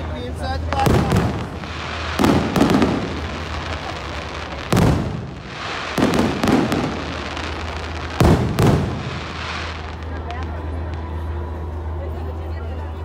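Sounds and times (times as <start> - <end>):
fireworks booming: 0.7 - 11.1.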